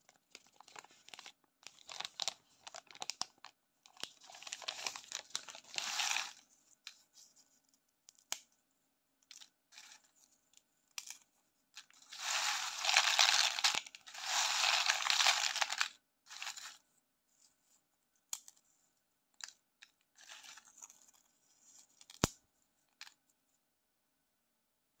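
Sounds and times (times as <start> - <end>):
puffed crisps rustling in a bowl: 4.3 - 6.4, 12.0 - 16.8.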